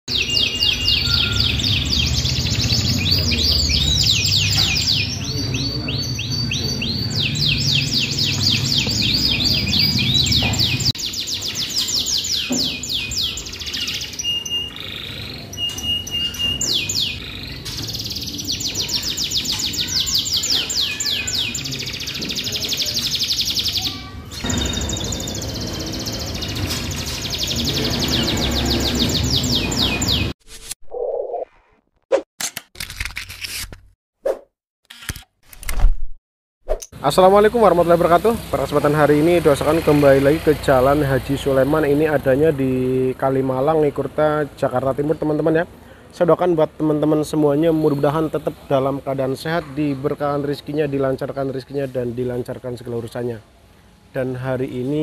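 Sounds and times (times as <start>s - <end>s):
canaries singing trills: 0.1s - 30.4s.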